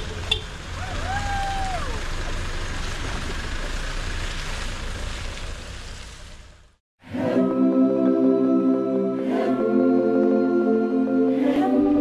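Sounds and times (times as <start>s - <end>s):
truck engine rumbling: 0.0s - 6.8s
tyres on dirt and road: 0.0s - 6.8s.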